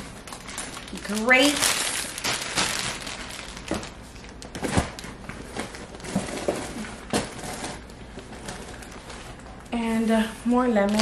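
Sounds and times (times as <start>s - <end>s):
packaging rustling: 0.0s - 9.6s, 10.8s - 11.0s.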